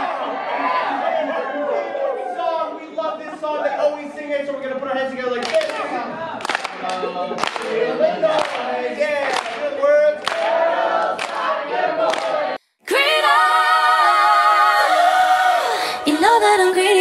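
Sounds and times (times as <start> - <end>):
voices singing a held chord: 11.6 - 17.0.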